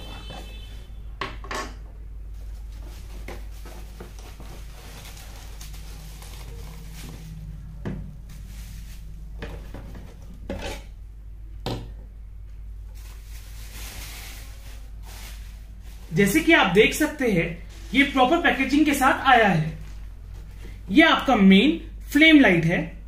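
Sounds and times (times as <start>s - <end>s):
bubble wrap crinkling: 2.4s - 9.8s, 12.8s - 16.5s.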